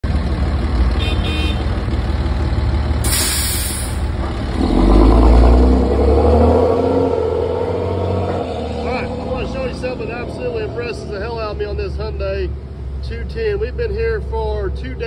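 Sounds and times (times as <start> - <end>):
heavy diesel engines droning: 0.0 - 15.0
truck engine revving: 0.0 - 15.0
air hiss: 3.1 - 4.0.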